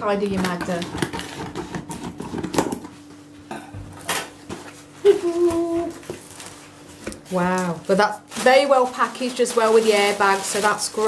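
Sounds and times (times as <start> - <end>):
scissors cutting packing tape: 0.4 - 2.8.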